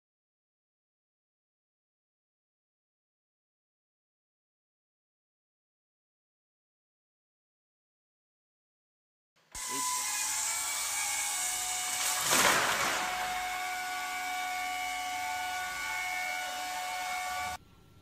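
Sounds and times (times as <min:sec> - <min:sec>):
workshop machinery whining: 0:09.5 - 0:17.7.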